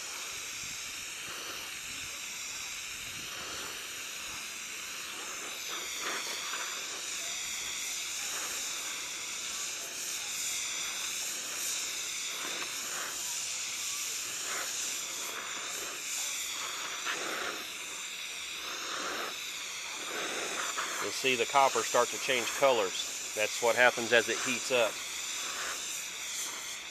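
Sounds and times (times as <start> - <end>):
welding torch flame hissing: 0.0 - 26.9.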